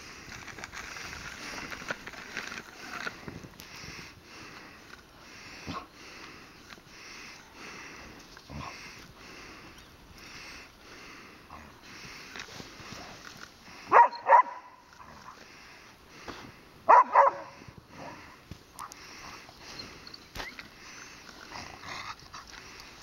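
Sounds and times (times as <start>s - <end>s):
faint rhythmic rustling: 0.0s - 23.0s
small dog barking: 13.9s - 14.8s, 16.9s - 17.5s.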